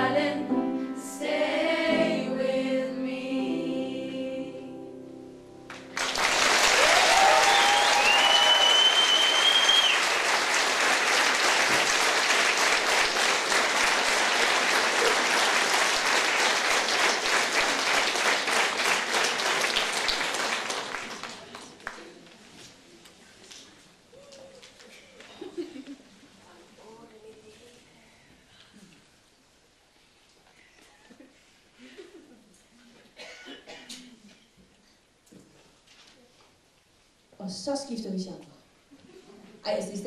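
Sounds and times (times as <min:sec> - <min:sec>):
choir holding a chord: 0:00.0 - 0:05.6
audience applause: 0:05.7 - 0:22.2
person whooping: 0:06.8 - 0:09.9
person whistling: 0:07.8 - 0:10.0.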